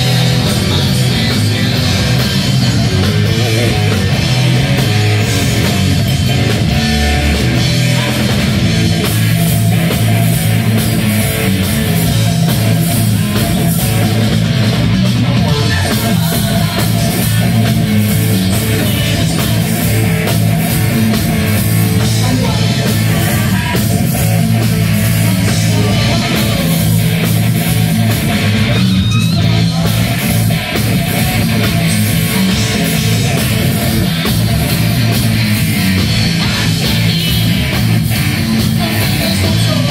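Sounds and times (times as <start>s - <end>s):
distorted electric guitars: 0.0s - 39.9s
drum kit: 0.0s - 39.9s
heavy bass: 0.0s - 39.9s.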